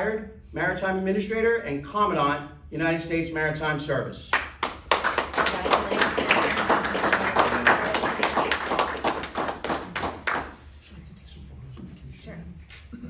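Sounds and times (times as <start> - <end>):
audience applauding: 4.6 - 10.6.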